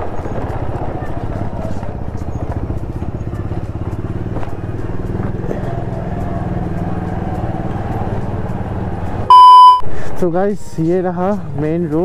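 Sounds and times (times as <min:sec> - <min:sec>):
vehicle engine running: 0:00.0 - 0:09.3.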